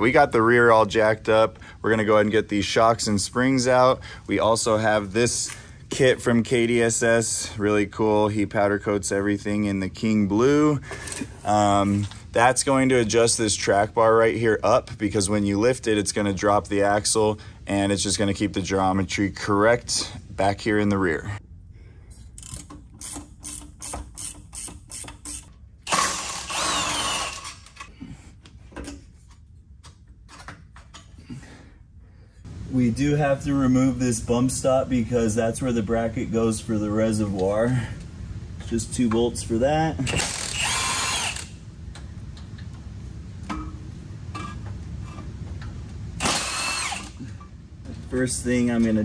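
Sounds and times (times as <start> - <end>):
impact wrench spinning: 22.2 - 27.9, 40.1 - 41.6, 46.2 - 47.2.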